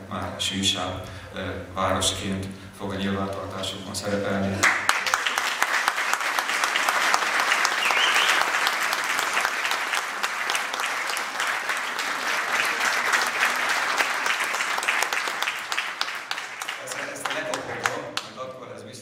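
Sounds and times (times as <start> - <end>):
audience applauding: 4.6 - 18.4.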